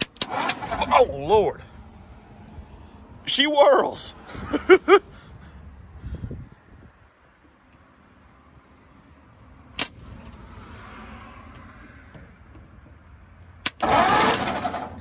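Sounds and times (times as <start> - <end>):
sharp click: 9.8 - 10.4.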